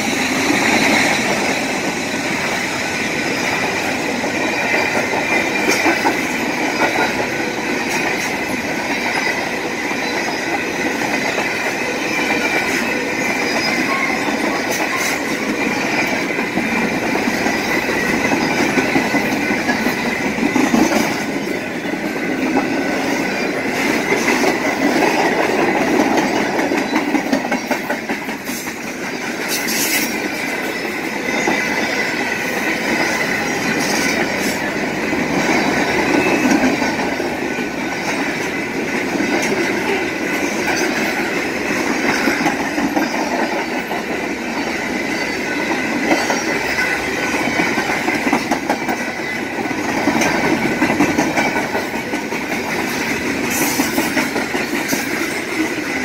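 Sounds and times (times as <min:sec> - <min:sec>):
high wheel squeal: 0:00.0 - 0:05.8, 0:29.5 - 0:36.8.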